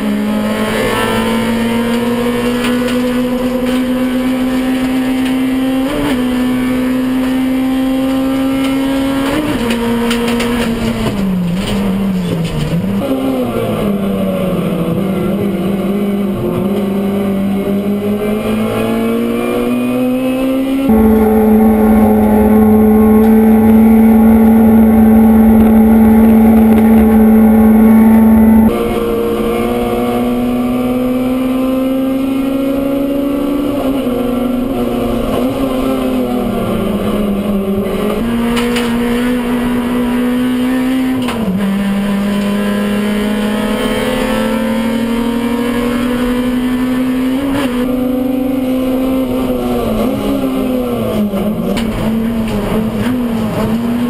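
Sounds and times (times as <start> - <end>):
race car engine high note: 20.9 - 30.2.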